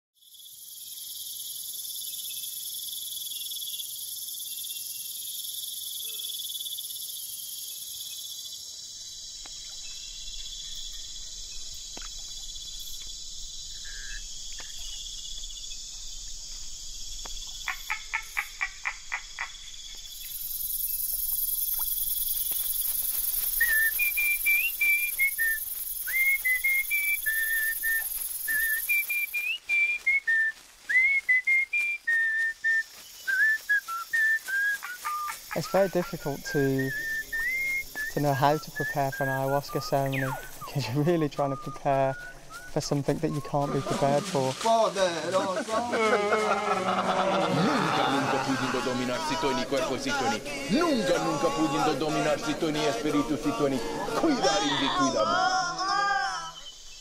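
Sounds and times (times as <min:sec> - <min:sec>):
night insects chirping: 0:00.2 - 0:57.0
rapid chirps: 0:09.4 - 0:30.2, 0:31.8 - 0:45.4
person whistling a melody: 0:23.5 - 0:35.3, 0:36.1 - 0:40.3.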